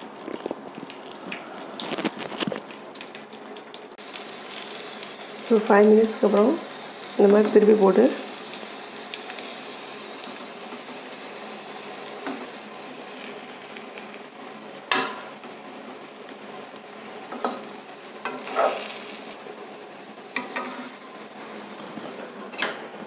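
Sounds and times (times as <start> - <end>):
okra sizzling in oil: 0.0 - 23.0
metal ladle scraping a pan: 20.4 - 21.0.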